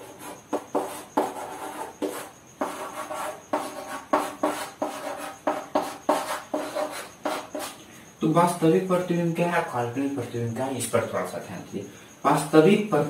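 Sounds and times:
chalk scraping on chalkboard: 0:00.0 - 0:07.8.

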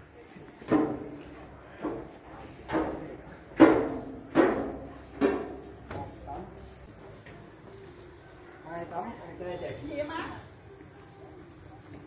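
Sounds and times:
insects droning: 0:00.0 - 0:12.0
sharp ringing knocks: 0:01.8 - 0:06.2.

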